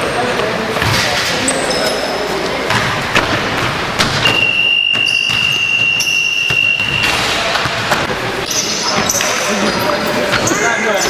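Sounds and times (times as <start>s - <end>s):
echoing court noise: 0.0s - 11.0s
sneakers on court: 2.6s - 8.1s
basketball thuds: 2.7s - 8.1s.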